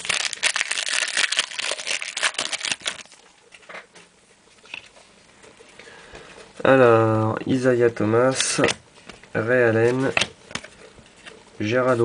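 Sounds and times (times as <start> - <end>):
wrapper crinkling and tearing: 0.0 - 3.2.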